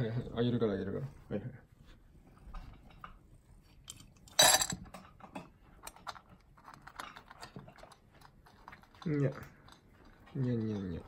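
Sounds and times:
cat crunching dry food: 5.1s - 11.0s.

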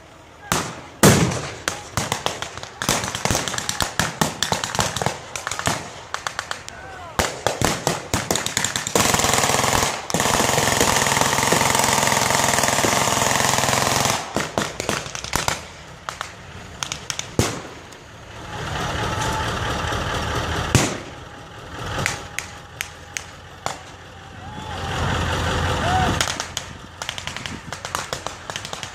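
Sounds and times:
machine gun firing burst: 0.5s - 6.6s, 7.2s - 15.8s, 26.3s - 28.9s
rifle shots: 0.5s - 18.0s, 20.7s - 21.2s, 26.2s - 28.9s.

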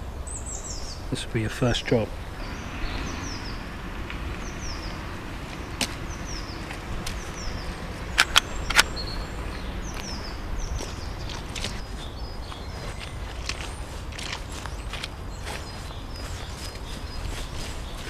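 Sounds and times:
birds chirping: 0.0s - 18.0s
low wind rumble: 0.0s - 18.0s
handgun clicks: 8.2s - 8.9s.

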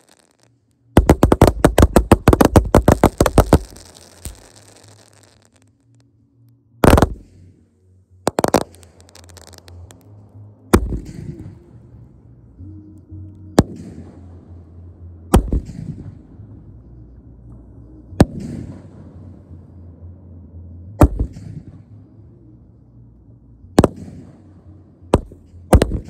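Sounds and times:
fireworks bangs: 0.0s - 5.7s, 6.8s - 7.2s, 8.3s - 10.0s
fireworks crackling: 0.0s - 6.0s, 6.8s - 7.2s, 8.3s - 10.0s
music: 0.0s - 26.0s.

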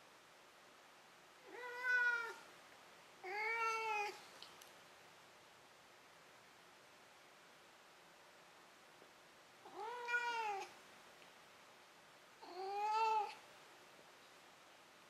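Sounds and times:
cat meowing: 1.4s - 2.4s, 3.2s - 4.2s, 9.7s - 10.7s, 12.4s - 13.4s.

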